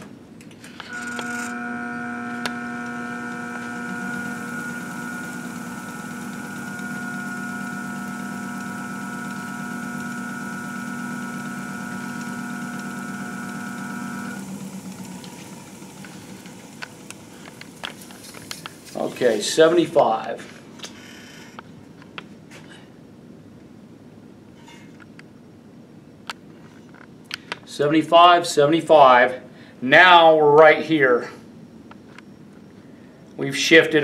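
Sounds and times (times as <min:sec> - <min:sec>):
balancing machine electric whine: 0:00.7 - 0:20.0.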